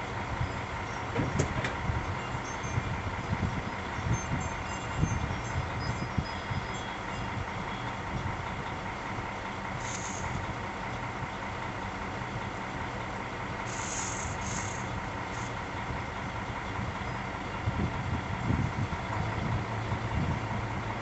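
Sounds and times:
vehicle engine idling: 0:00.0 - 0:21.0
brief high hisses: 0:13.7 - 0:14.9.

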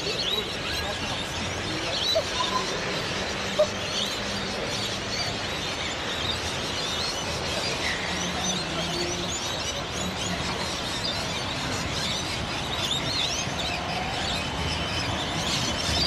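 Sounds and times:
small birds chirping: 0:00.0 - 0:16.0
street noise hum: 0:00.0 - 0:16.0.

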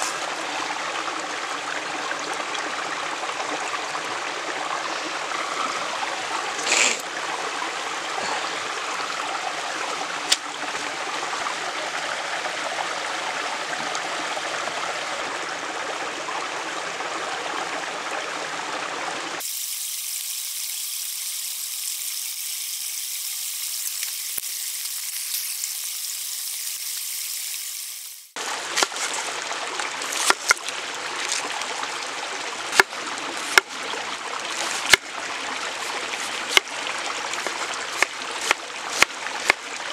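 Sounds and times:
running water rushing: 0:00.0 - 0:39.9
wood fire hissing and crackling: 0:19.4 - 0:28.4
knife slicing onion on wooden board: 0:37.4 - 0:39.6.

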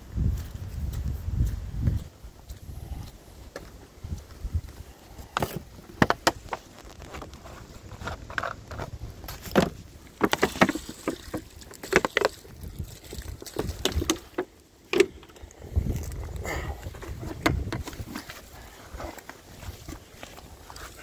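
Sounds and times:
footsteps on dirt and dry leaves: 0:00.0 - 0:14.6, 0:15.5 - 0:21.0
bucket and sack knocking and rustling: 0:05.4 - 0:15.4, 0:16.0 - 0:21.0.

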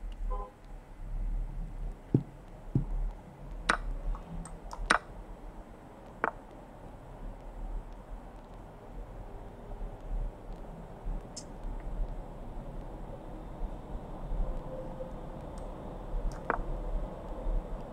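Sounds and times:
low steady hum: 0:00.0 - 0:17.9
sharp mouse clicks: 0:03.5 - 0:05.1, 0:16.3 - 0:16.6.

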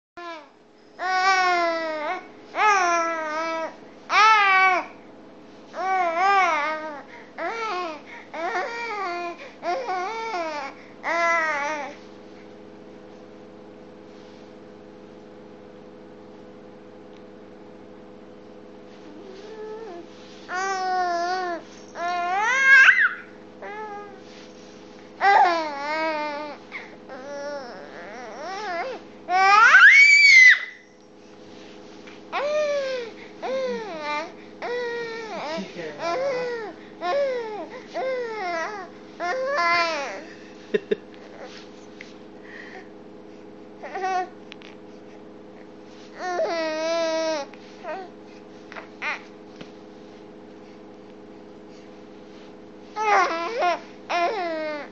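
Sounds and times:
faint steady hum: 0:00.2 - 0:54.9
baby babbling: 0:25.2 - 0:29.8, 0:32.4 - 0:40.3.

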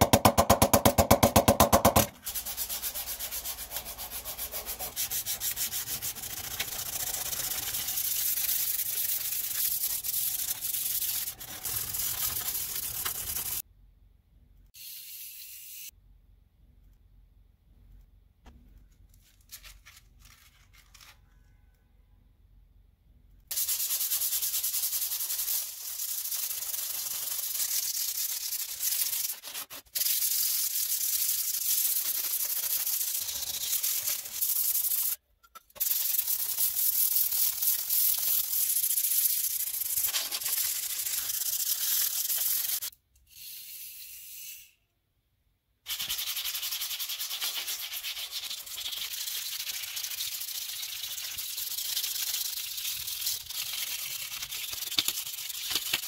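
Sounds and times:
sandpaper rasping on metal blade: 0:02.2 - 0:13.6, 0:23.5 - 0:35.2, 0:35.8 - 0:42.9, 0:45.9 - 0:56.0.

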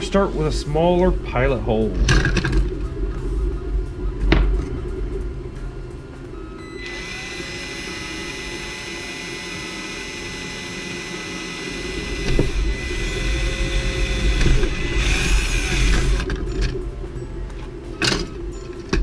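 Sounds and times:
impact driver drilling plastic: 0:06.8 - 0:16.3.

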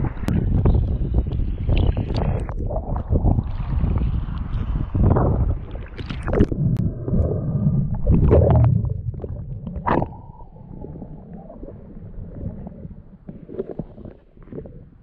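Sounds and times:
muffled underwater rumble: 0:00.0 - 0:15.0
seawater sloshing and splashing: 0:01.7 - 0:06.7.

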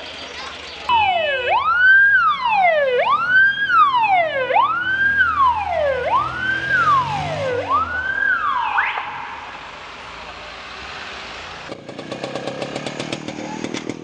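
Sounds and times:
police siren wailing: 0:00.9 - 0:09.8.

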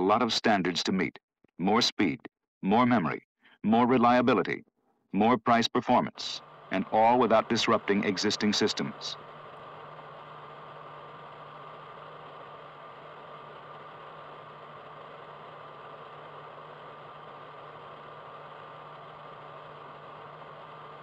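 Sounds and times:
low hum: 0:06.2 - 0:21.0.

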